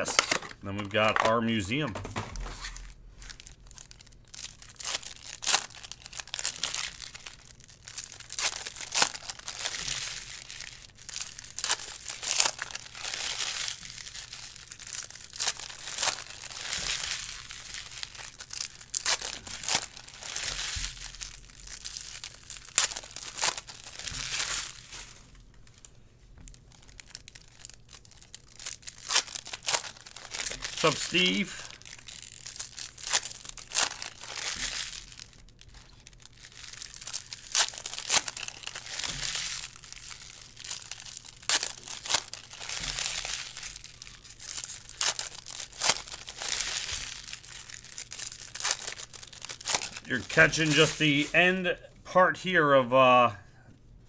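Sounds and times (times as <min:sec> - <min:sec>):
cards being handled: 0:00.0 - 0:03.9, 0:28.4 - 0:31.8, 0:36.6 - 0:51.6
foil wrappers tearing and crinkling: 0:00.0 - 0:51.7.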